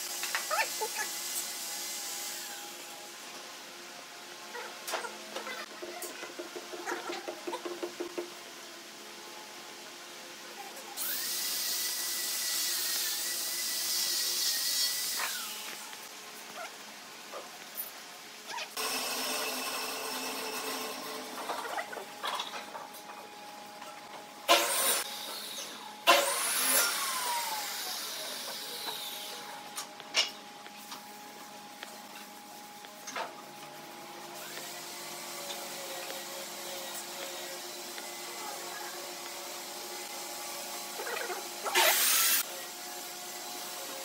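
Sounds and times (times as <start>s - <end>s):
electric motor whirring: 24.5s - 29.5s, 41.6s - 42.5s.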